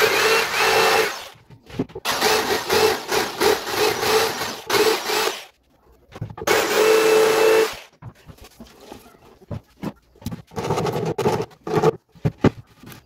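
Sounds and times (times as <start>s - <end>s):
electric jigsaw cutting wood: 0.0s - 1.4s, 2.0s - 5.5s, 6.5s - 7.9s.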